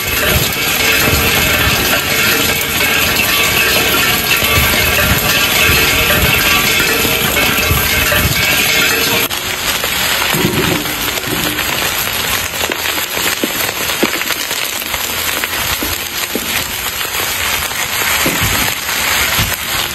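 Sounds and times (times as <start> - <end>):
popcorn popping: 0.0 - 19.9
steady sizzling hiss: 0.0 - 19.9.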